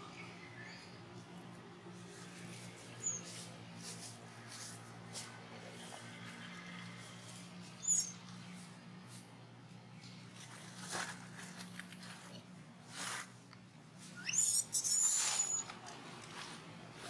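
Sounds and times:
rustling in dry leaves: 0:01.9 - 0:08.0, 0:10.0 - 0:17.0
baby monkey squeaks: 0:03.0 - 0:03.3, 0:07.8 - 0:08.2, 0:14.1 - 0:15.7.

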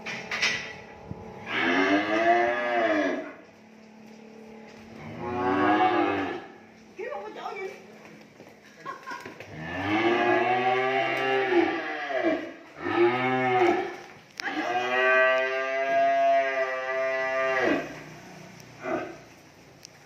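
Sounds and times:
cattle mooing: 0:01.4 - 0:03.4, 0:04.9 - 0:06.6, 0:09.5 - 0:18.2.

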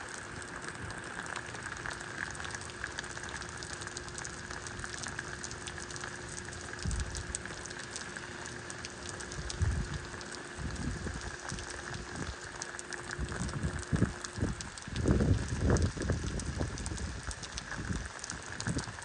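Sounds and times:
rain falling: 0:00.0 - 0:19.0
wind buffeting microphone: 0:09.4 - 0:10.0, 0:10.6 - 0:11.6, 0:13.2 - 0:18.0.

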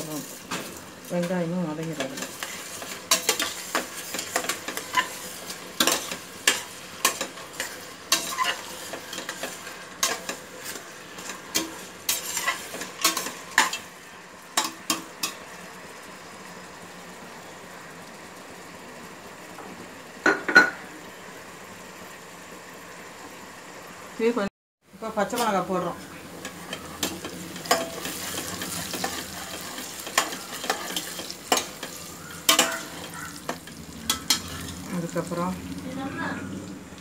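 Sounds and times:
onions sizzling in oil: 0:00.0 - 0:37.0
metal spatula scraping a pot: 0:02.0 - 0:13.8, 0:26.4 - 0:34.9.

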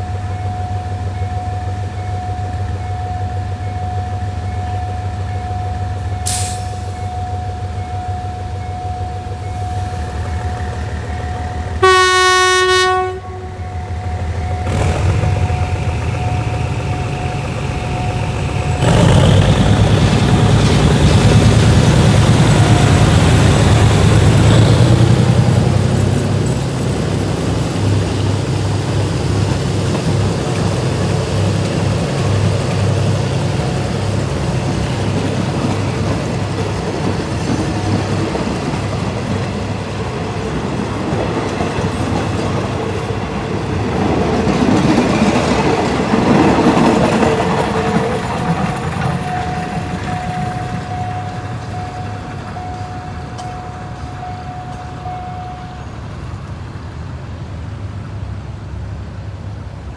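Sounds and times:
diesel locomotive engine: 0:00.0 - 0:59.9
train wheels clacking over rail joints: 0:14.6 - 0:54.9.

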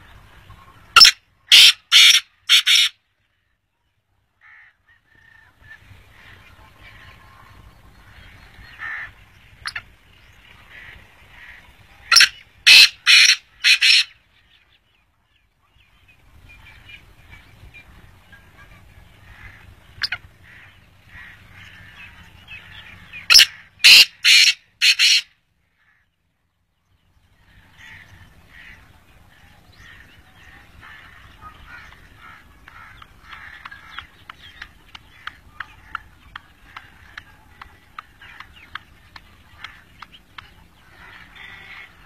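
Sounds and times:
harsh grating bird call: 0:00.9 - 0:03.0, 0:08.0 - 0:14.2, 0:19.1 - 0:26.1.

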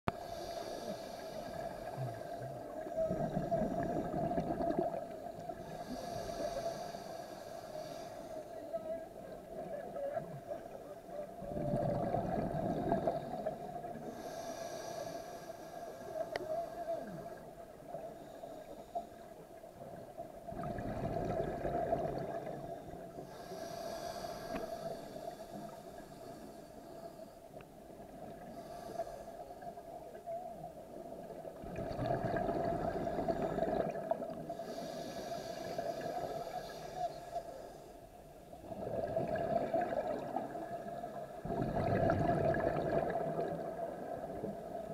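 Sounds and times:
diver inhaling through regulator: 0:00.1 - 0:04.8, 0:05.5 - 0:08.6, 0:12.2 - 0:17.5, 0:21.6 - 0:27.5, 0:28.4 - 0:29.8, 0:32.9 - 0:38.0
exhaled bubbles fizzing: 0:03.1 - 0:05.2, 0:11.4 - 0:13.7, 0:20.5 - 0:22.7, 0:31.6 - 0:34.5, 0:38.6 - 0:44.9.

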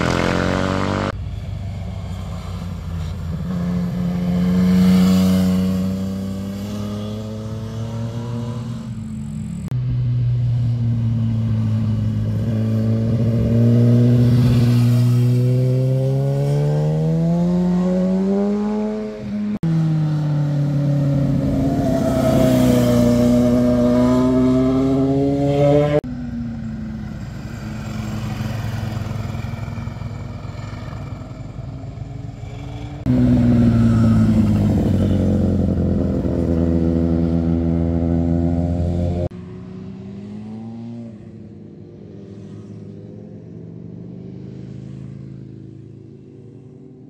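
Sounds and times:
motorcycle engines accelerating: 0:00.0 - 0:47.0
motorcycle passing close: 0:00.0 - 0:47.0.

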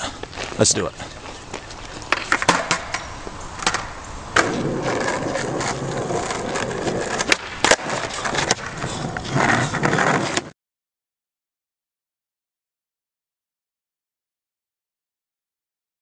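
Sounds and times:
skateboard wheels rolling on asphalt: 0:00.0 - 0:10.5
skateboard clacking: 0:01.6 - 0:10.5.

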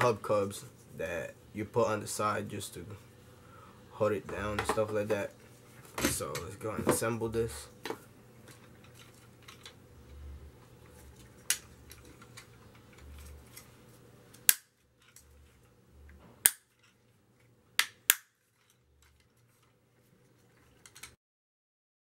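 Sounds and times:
soft handling rustle: 0:18.4 - 0:21.0.

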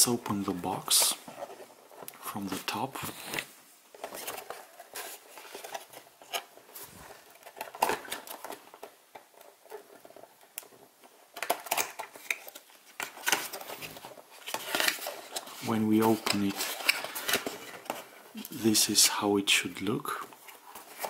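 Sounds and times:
cardboard scraping and rustling: 0:00.8 - 0:08.9.

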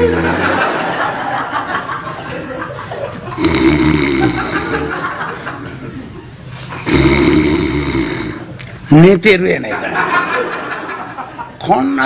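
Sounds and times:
audience laughing: 0:00.0 - 0:06.9, 0:09.7 - 0:11.6
person mock snoring: 0:03.4 - 0:05.0, 0:06.8 - 0:08.5.

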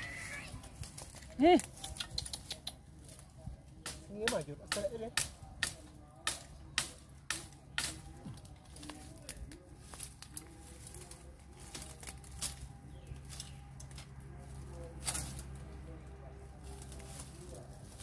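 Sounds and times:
bamboo and leaves rustling: 0:00.0 - 0:18.0
bamboo stems snapping: 0:03.8 - 0:14.2, 0:15.0 - 0:15.5.

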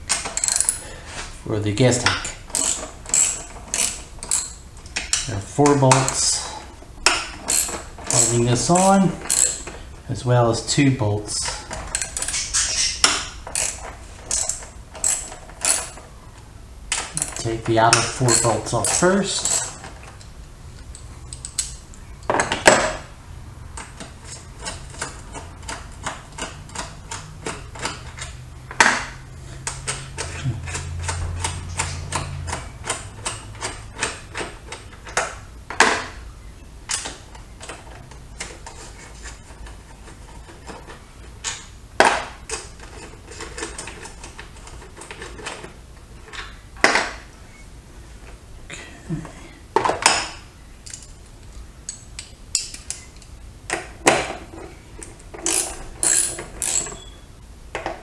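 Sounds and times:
socket ratchet clicking: 0:00.1 - 0:00.8, 0:02.2 - 0:05.3, 0:07.0 - 0:09.7, 0:11.9 - 0:16.0, 0:55.0 - 0:57.1.

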